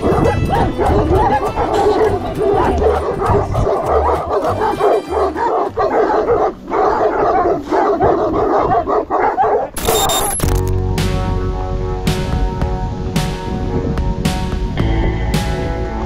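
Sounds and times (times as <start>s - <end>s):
music: 0.0s - 6.6s, 10.4s - 16.0s
dogs barking and yelping: 0.0s - 10.4s.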